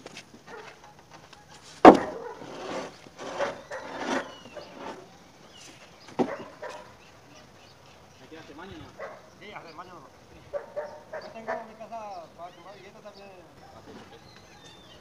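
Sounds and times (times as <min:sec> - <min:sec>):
concrete scraping: 0:00.0 - 0:06.9
concrete beam knocking down: 0:01.8 - 0:05.0.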